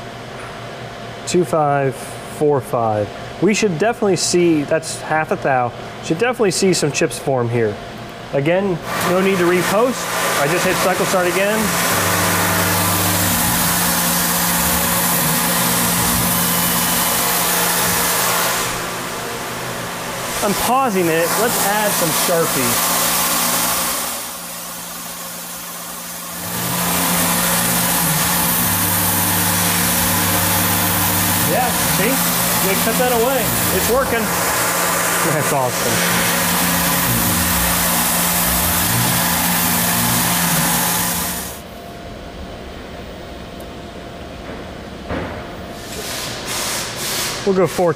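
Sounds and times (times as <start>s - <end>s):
mill spindle hum: 0.0s - 45.8s
cutting hiss: 9.0s - 19.0s, 25.1s - 41.6s.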